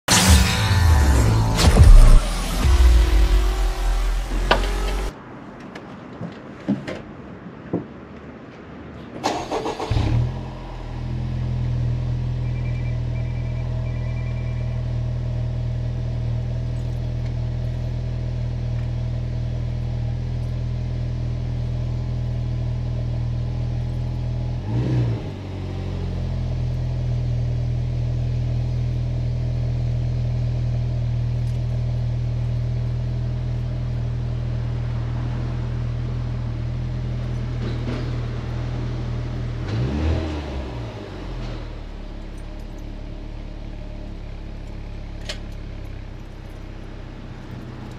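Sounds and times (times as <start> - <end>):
engine cranking and starting: 9.2 - 10.3
car engine idling: 9.3 - 24.8, 41.0 - 47.9.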